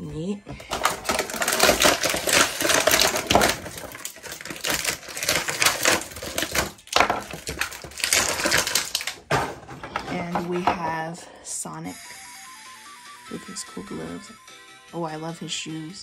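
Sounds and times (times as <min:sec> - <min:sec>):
plastic and cardboard crackling: 0:00.5 - 0:11.0.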